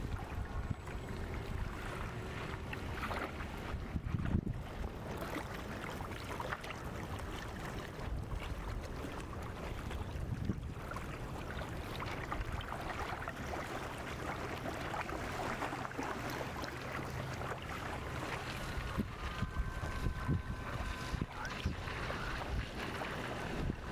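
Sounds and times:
wind buffeting microphone: 0.0s - 2.9s, 3.5s - 5.0s, 9.8s - 11.3s, 17.4s - 23.9s
water washing: 11.1s - 23.9s.

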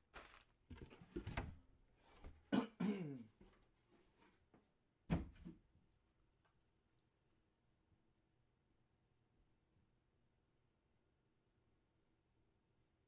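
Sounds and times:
man clearing throat: 2.5s - 3.3s
man coughing: 2.5s - 3.3s.

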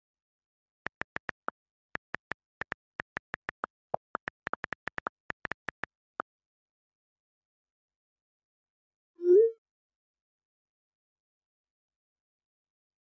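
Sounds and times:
phone keyboard clicks: 0.9s - 5.9s.

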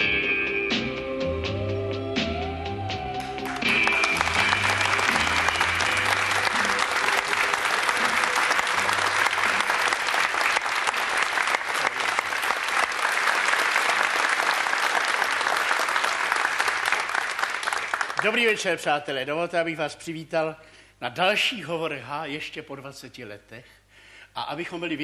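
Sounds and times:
theme music: 0.0s - 12.5s
audience applauding: 3.2s - 18.8s.

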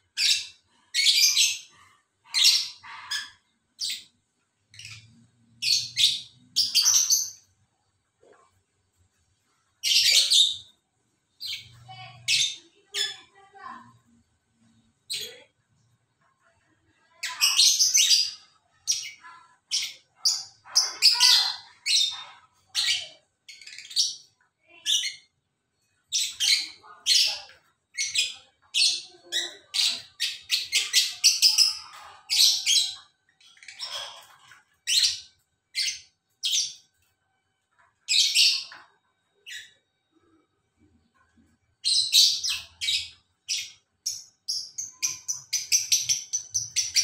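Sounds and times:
lovebirds chirping: 0.0s - 7.6s, 41.8s - 47.0s.

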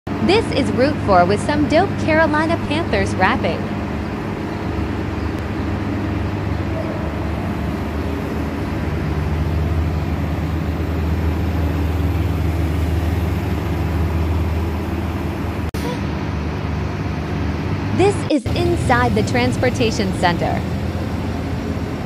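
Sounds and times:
bus engine droning: 0.1s - 22.0s.

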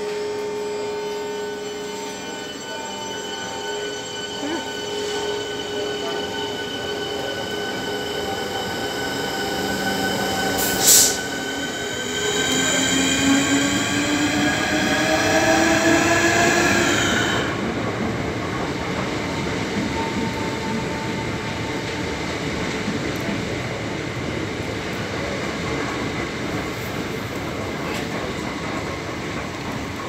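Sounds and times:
train traction motors whining: 0.1s - 23.3s
train carriages rolling past: 1.4s - 30.0s
air brake hiss: 10.6s - 11.4s.

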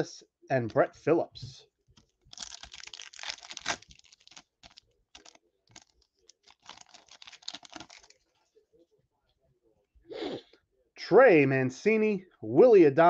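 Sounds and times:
foil wrapper crinkling and tearing: 2.2s - 8.2s.

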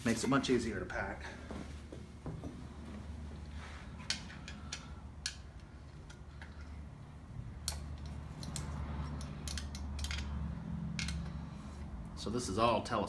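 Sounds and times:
metal clicks from wrench: 7.6s - 10.4s.

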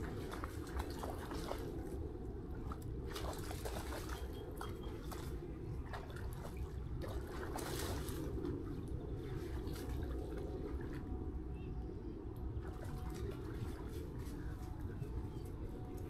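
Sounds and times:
shallow water splashing: 0.0s - 11.2s
low steady rumble: 0.0s - 16.0s.

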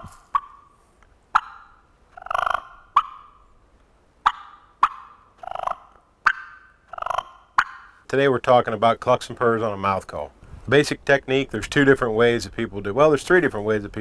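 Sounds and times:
turkey rolling purrs: 0.0s - 3.4s, 4.2s - 7.9s
turkey clucks: 0.0s - 3.6s, 4.2s - 8.0s.

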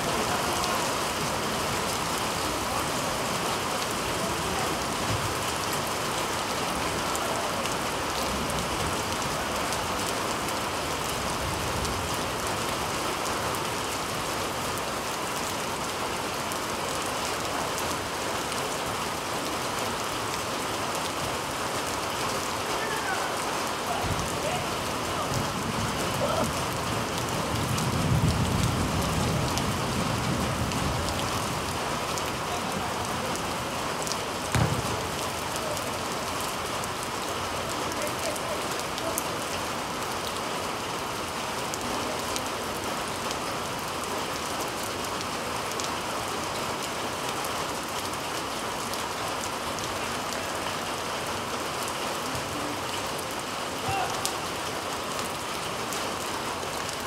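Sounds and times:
heavy rain hissing: 0.0s - 57.0s
dull thump: 34.5s - 35.1s.

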